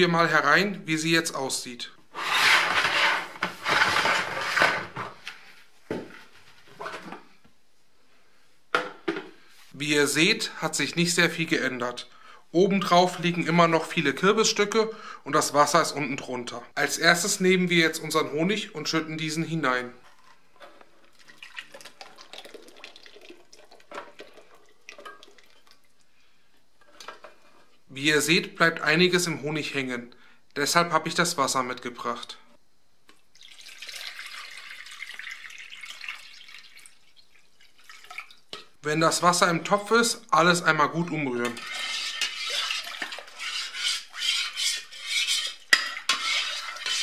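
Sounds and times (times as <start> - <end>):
plastic lid scraping on rim: 2.1 - 5.1.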